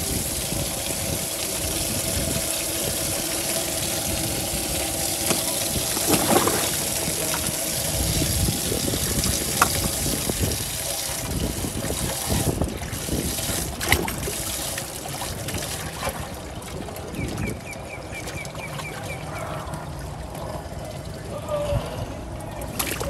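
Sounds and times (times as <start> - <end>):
water trickling and splashing: 0.0 - 23.0.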